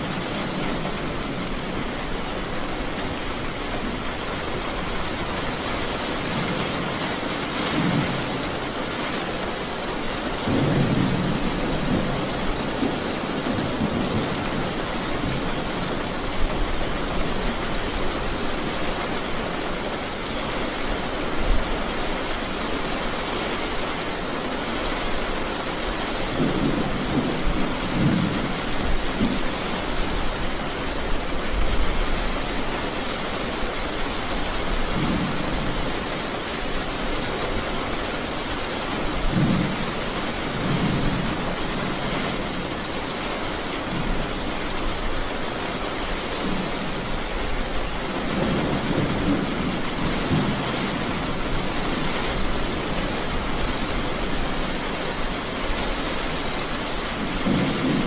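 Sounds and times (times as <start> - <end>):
steady rain: 0.0 - 58.0
thunder rumbling: 10.4 - 16.2, 57.1 - 58.0.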